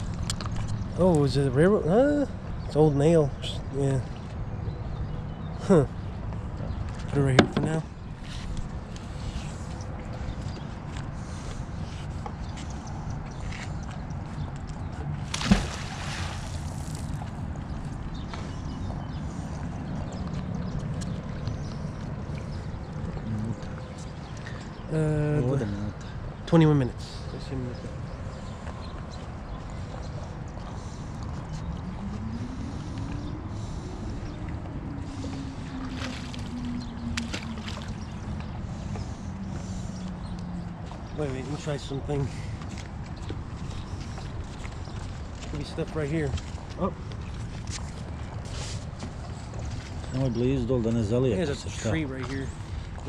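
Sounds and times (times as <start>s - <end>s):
boat motor droning: 0.0s - 12.4s, 27.5s - 53.0s
magnet splashing into river: 15.2s - 17.2s.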